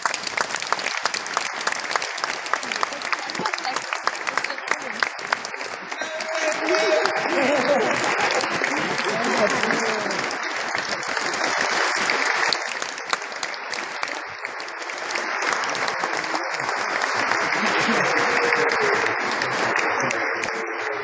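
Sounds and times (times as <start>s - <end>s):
crowd applauding: 0.0s - 21.0s
voices calling out: 5.7s - 10.6s.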